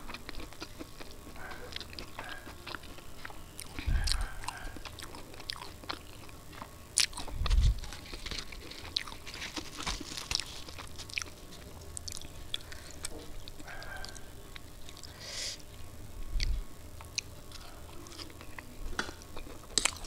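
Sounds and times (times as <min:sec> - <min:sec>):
close chewing: 0:00.0 - 0:15.2, 0:16.4 - 0:20.0.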